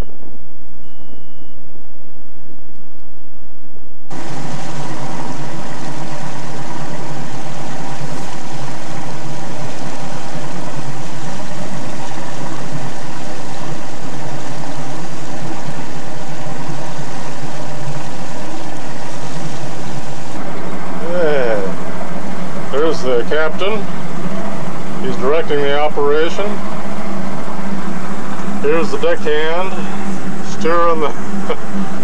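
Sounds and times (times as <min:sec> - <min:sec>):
outboard motor running: 0:04.1 - 0:32.0.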